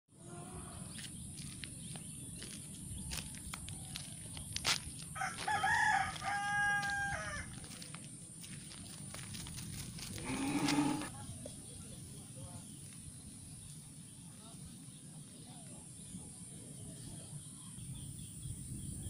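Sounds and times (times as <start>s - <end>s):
rooster crowing: 5.2s - 7.7s.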